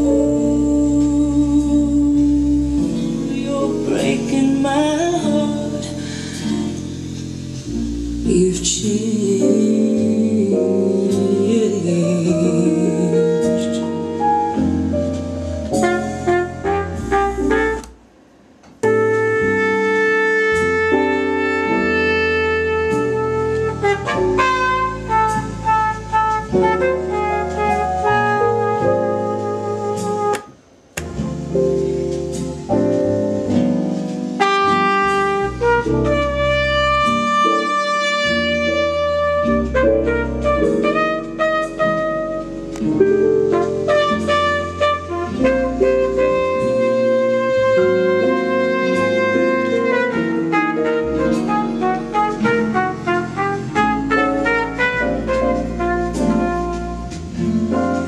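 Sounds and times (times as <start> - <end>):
piano: 0.0 - 58.0
saxophone: 12.3 - 18.0, 18.8 - 33.6, 34.2 - 58.0.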